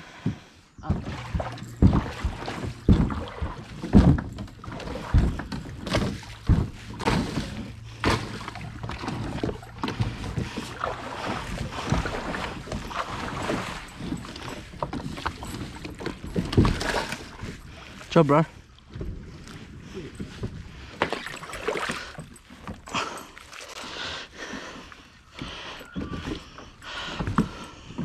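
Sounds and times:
plastic kayak knocking on logs: 0.3s - 10.9s
flowing water: 0.8s - 28.0s.

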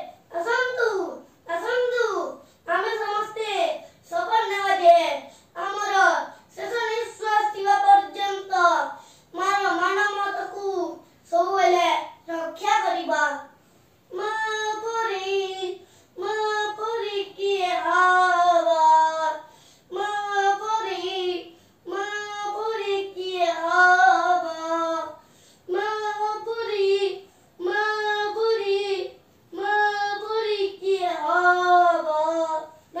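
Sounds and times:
young boy singing: 0.0s - 33.0s.

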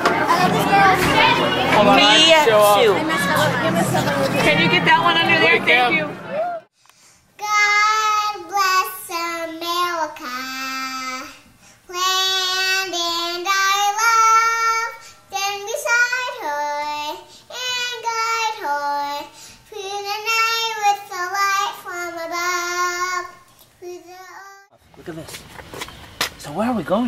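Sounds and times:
girl singing unaccompanied: 0.0s - 2.1s, 7.3s - 24.7s
breaths: 6.7s - 7.3s, 11.5s - 11.9s, 15.0s - 15.3s, 17.2s - 17.5s, 19.3s - 19.7s.

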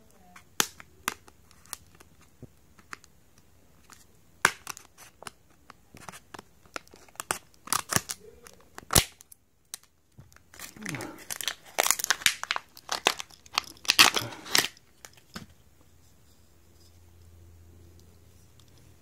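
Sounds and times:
scissors cutting plastic packaging: 10.6s - 15.2s.

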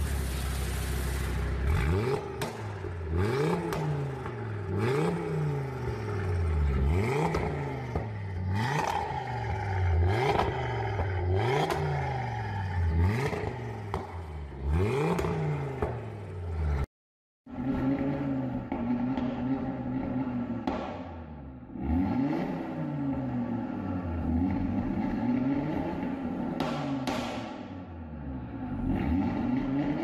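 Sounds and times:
car engine revving: 1.0s - 16.9s, 17.5s - 30.0s.

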